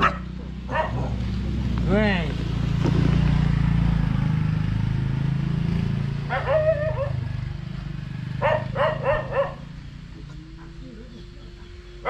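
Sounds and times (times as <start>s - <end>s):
dog barking: 0.0s - 1.3s, 6.3s - 7.2s, 8.4s - 9.8s
low engine hum: 0.0s - 12.0s.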